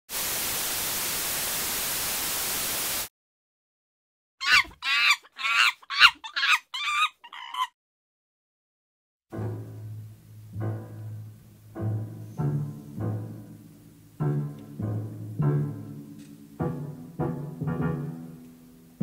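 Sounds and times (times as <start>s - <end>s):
white noise hiss: 0.1s - 3.1s
chimpanzee screeches: 4.4s - 7.8s.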